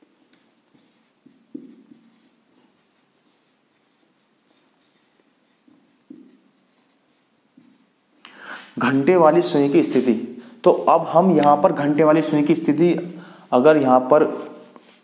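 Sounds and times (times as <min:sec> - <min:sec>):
marker pen writing on whiteboard: 0:00.0 - 0:08.2.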